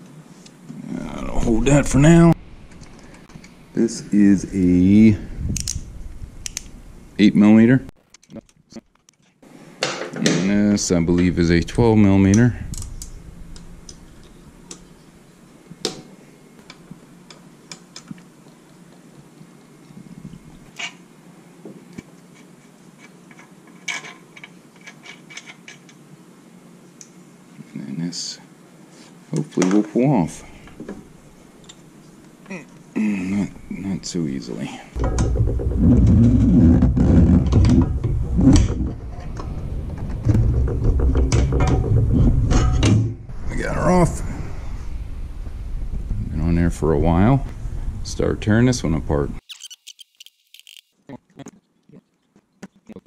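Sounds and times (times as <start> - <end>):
steady low hum: 0.0 - 7.9, 10.4 - 17.7, 30.1 - 49.5.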